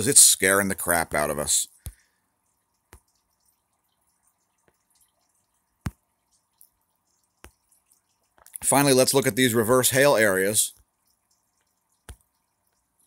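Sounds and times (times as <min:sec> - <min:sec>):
fingers tapping a phone: 0:01.8 - 0:08.6, 0:10.8 - 0:13.0.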